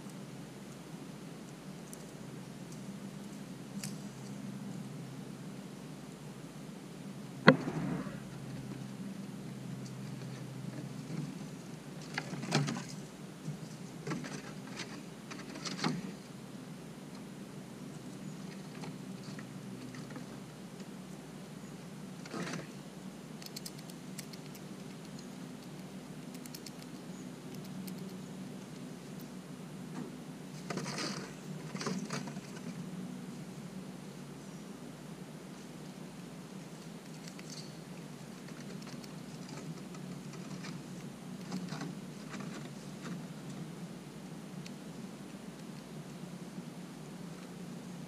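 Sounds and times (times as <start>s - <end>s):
low hum: 7.2s - 11.6s
squirrel nibbling and scratching: 22.1s - 29.9s, 30.5s - 33.4s, 35.5s - 48.0s.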